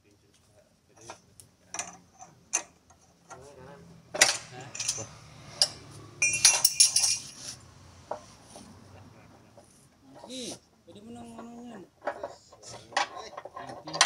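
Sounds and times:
metal tools clinking: 4.2 - 7.4, 12.0 - 14.0.

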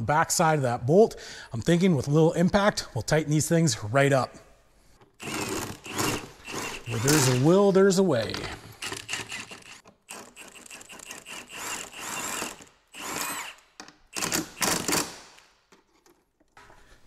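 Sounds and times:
impact wrench bursts: 5.2 - 7.6, 8.4 - 15.4.

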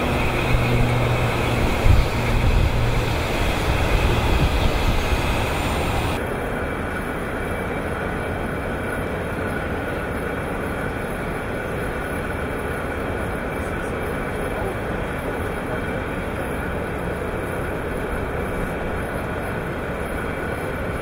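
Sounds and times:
high hiss: 0.0 - 6.2
excavator mechanical drone: 0.0 - 21.0
faint steady whine: 0.0 - 21.0.

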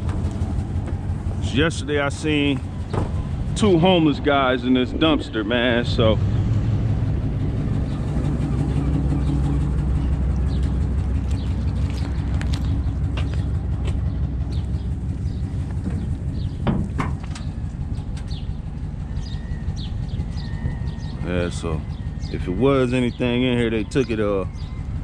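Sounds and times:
birds chirping: 0.0 - 25.0
vehicle engine idling: 0.0 - 25.0
sharp knocks: 2.9 - 3.3, 15.8 - 17.5.

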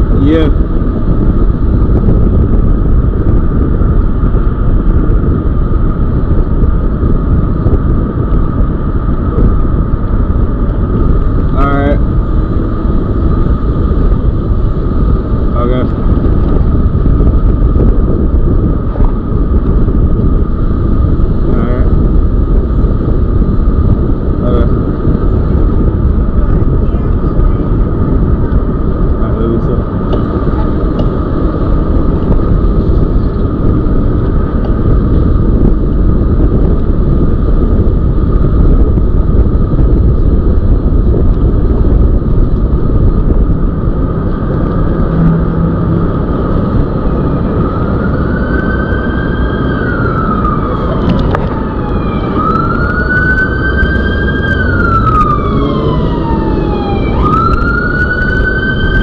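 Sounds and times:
wind and road noise: 0.0 - 59.0
emergency siren wailing: 43.0 - 59.0.

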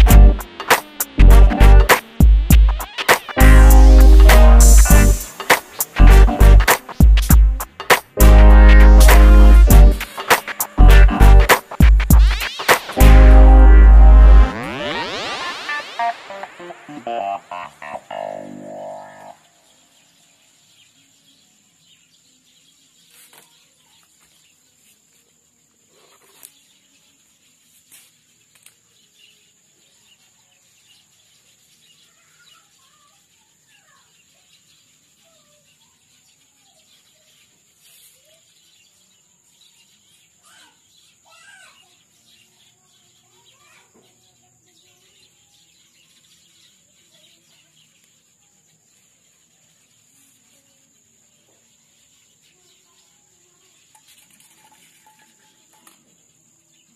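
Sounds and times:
high-pitched whine: 0.0 - 7.1, 10.8 - 19.3
bird-like chirps: 0.0 - 13.8, 14.4 - 56.9.

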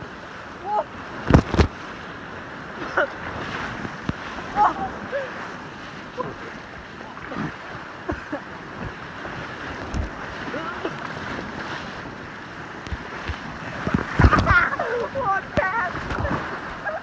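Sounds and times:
whitewater rapids rushing: 0.0 - 17.0
raft knocks and splashes: 1.2 - 1.8, 12.8 - 16.6.

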